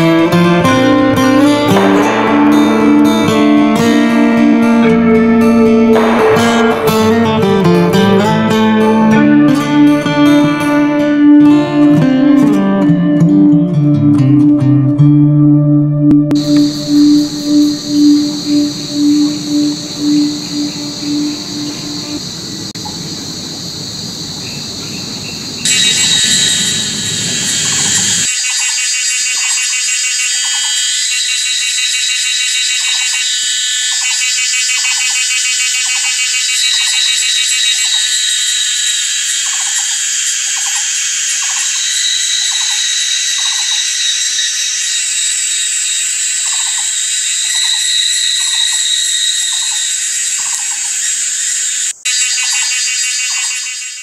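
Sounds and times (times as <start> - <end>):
short descending calls: 16.4 - 22.7, 25.6 - 29.7, 30.4 - 54.0
insects and frogs buzzing and trilling: 16.4 - 54.0.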